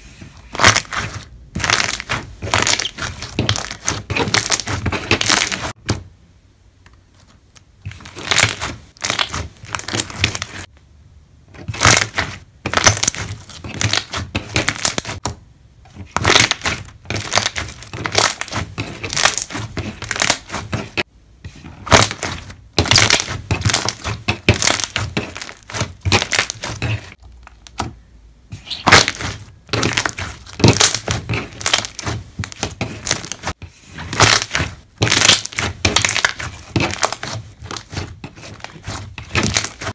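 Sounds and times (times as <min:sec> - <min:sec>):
slime squished by hand: 0:00.5 - 0:05.8, 0:07.9 - 0:10.6, 0:16.0 - 0:21.0, 0:21.8 - 0:27.8, 0:28.6 - 0:39.9.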